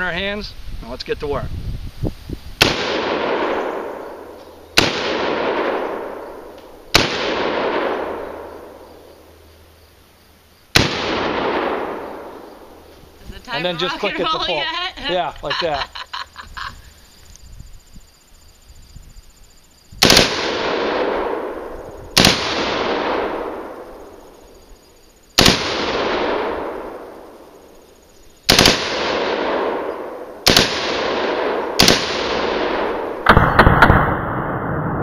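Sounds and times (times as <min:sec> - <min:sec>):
rifle shots with echo: 0:02.6 - 0:09.0, 0:10.8 - 0:12.8, 0:20.0 - 0:24.3, 0:25.4 - 0:27.7, 0:28.5 - 0:35.0
rapid burst of gunshots: 0:20.0 - 0:21.5, 0:22.2 - 0:23.6, 0:25.4 - 0:26.7, 0:28.5 - 0:34.2.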